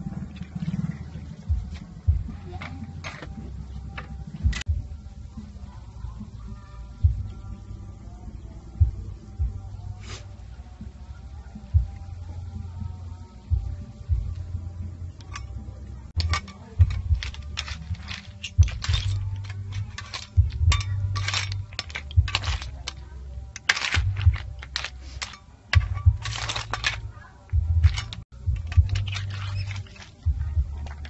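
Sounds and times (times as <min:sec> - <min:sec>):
snail shells clattering in metal pan: 0:15.2 - 0:31.0.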